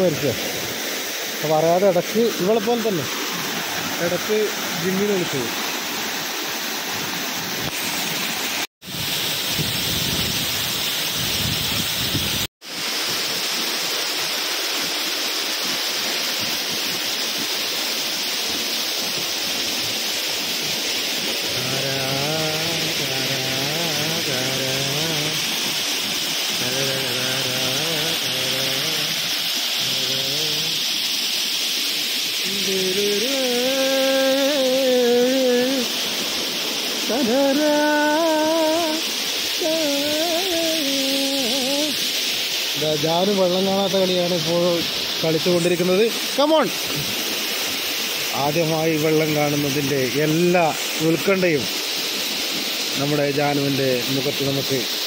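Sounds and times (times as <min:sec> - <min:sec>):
waterfall rushing over rock: 0:00.0 - 0:55.0
low voice singing slowly: 0:21.5 - 0:25.6, 0:26.6 - 0:30.9, 0:32.4 - 0:36.0, 0:37.1 - 0:42.1.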